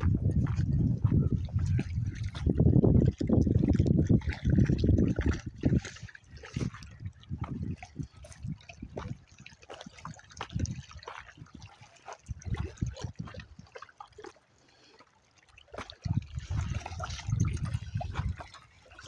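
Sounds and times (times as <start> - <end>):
footsteps on loose stones: 0.0 - 3.0
dogs splashing in water: 1.0 - 19.0.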